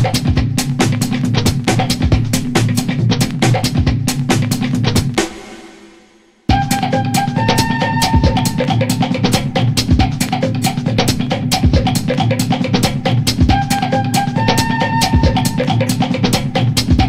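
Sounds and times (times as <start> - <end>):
drum-kit beat: 0.0 - 17.0
held melodic phrase: 6.5 - 9.4, 13.6 - 16.2.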